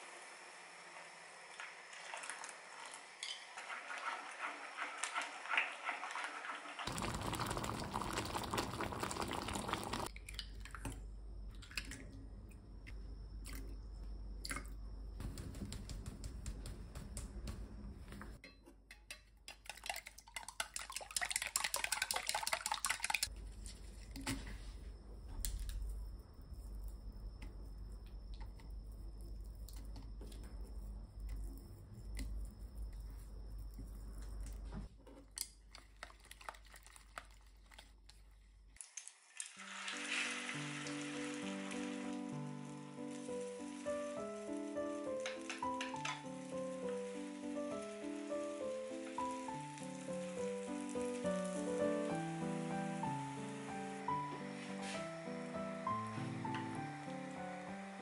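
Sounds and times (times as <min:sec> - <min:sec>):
eggs being beaten: 0:15.2 - 0:23.3, 0:35.4 - 0:38.2.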